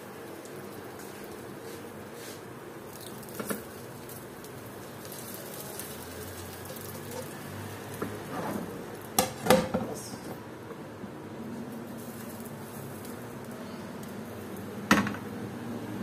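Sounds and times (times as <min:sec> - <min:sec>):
bread sizzling in a pan: 0:00.0 - 0:09.4, 0:11.5 - 0:14.9.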